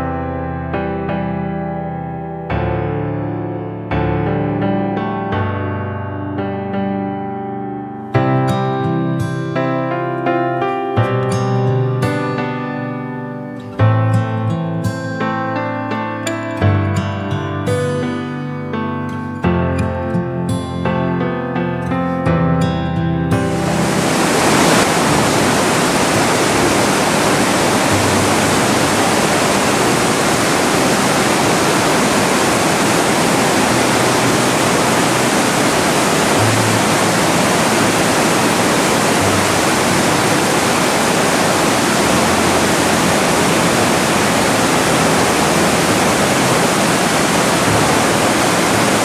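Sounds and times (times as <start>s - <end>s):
waterfall rushing through gorge: 23.4s - 49.0s.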